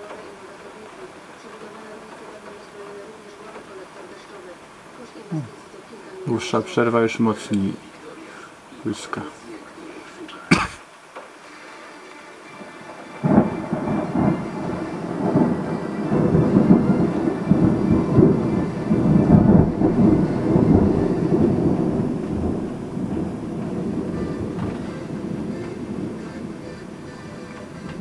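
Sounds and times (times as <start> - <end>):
steady rain hissing: 0.0 - 28.0
thunder crack: 12.6 - 28.0
deep rumble of thunder: 13.2 - 28.0.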